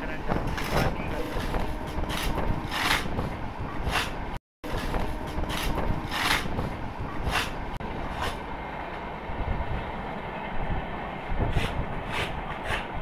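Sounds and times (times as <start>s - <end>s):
train low rumble: 3.1s - 13.0s.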